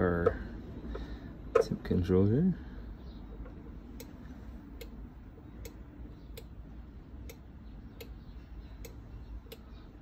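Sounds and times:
faint low hum: 0:00.0 - 0:10.0
mechanical ticking: 0:03.4 - 0:05.0, 0:07.2 - 0:10.0.

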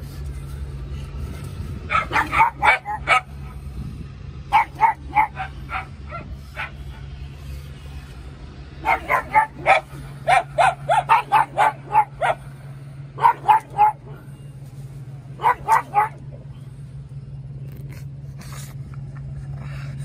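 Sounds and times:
dog barking: 0:01.9 - 0:03.4, 0:04.5 - 0:07.0, 0:08.8 - 0:12.4, 0:13.2 - 0:14.2, 0:15.4 - 0:16.2.

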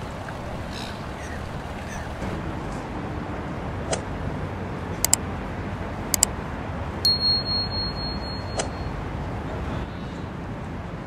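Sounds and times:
boat engine rumble: 0:00.0 - 0:11.0
ringing notification chime: 0:07.1 - 0:09.0.

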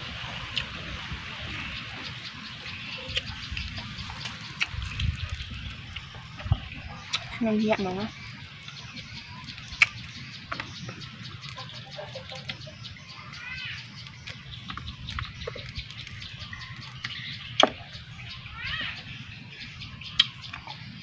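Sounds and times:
bird chirping: 0:00.5 - 0:21.0
fruit peel cracking: 0:09.4 - 0:10.6, 0:20.2 - 0:20.7.

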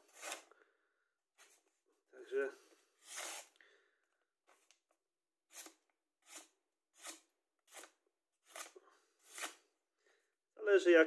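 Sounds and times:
knife slicing paper: 0:03.0 - 0:03.5, 0:05.5 - 0:09.7.

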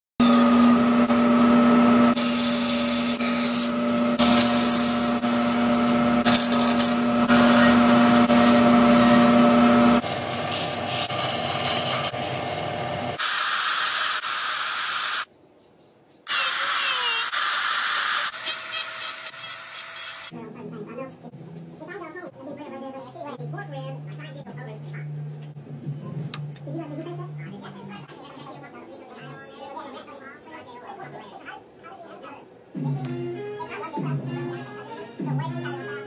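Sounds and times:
rotary tool sanding wood: 0:00.2 - 0:12.8
bandsaw cutting wood: 0:00.2 - 0:13.3, 0:16.3 - 0:20.3.

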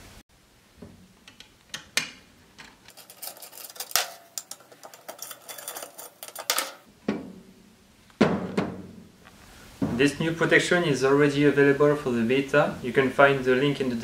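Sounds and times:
hex key clicking and scraping screws: 0:02.6 - 0:06.9.

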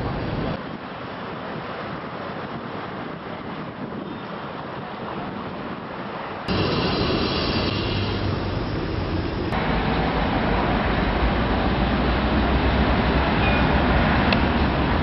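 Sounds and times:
street traffic rumble: 0:00.0 - 0:02.4, 0:06.0 - 0:15.0.

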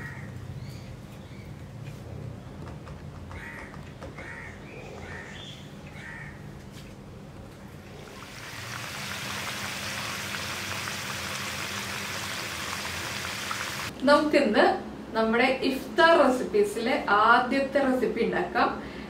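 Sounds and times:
crow cawing: 0:03.4 - 0:06.4
food deep-frying in hot oil: 0:08.1 - 0:13.9.

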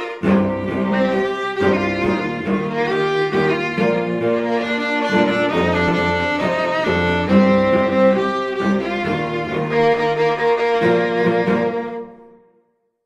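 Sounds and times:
background music with sustained notes: 0:00.0 - 0:12.8.

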